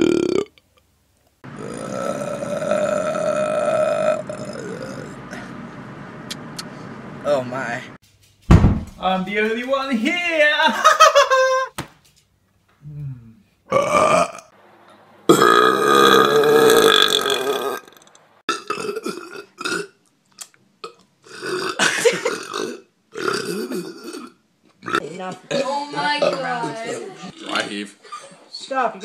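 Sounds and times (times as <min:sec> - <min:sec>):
men belching: 0:00.0 - 0:00.6, 0:01.4 - 0:05.4, 0:13.7 - 0:14.5, 0:15.3 - 0:19.9, 0:20.8 - 0:27.7.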